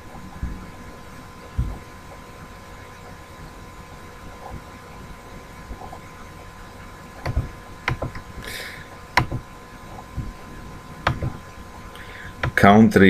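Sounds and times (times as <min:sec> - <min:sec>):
faint electrical hum: 0:00.0 - 0:13.0
mouse and keyboard clicks: 0:07.2 - 0:08.2.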